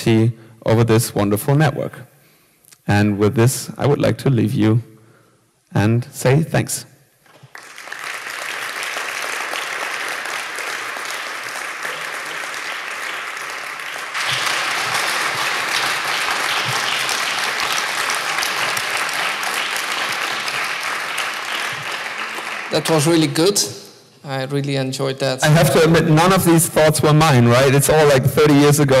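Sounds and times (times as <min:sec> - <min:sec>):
audience applauding: 0:07.3 - 0:23.7.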